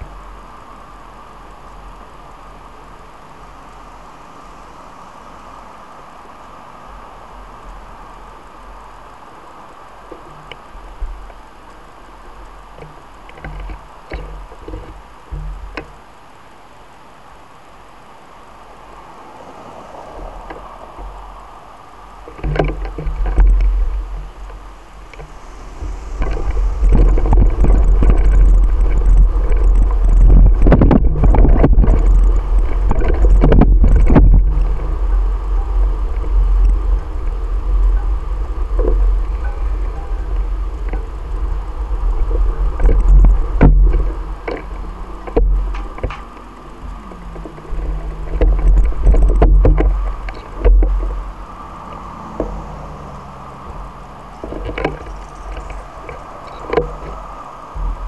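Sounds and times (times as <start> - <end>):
street traffic noise: 0.0 - 58.0
wind and road rumble: 0.0 - 58.0
low bumps and clicks on camera: 22.3 - 38.0, 38.7 - 51.3, 53.7 - 57.2
bicycle knocks and jolts: 26.2 - 51.2.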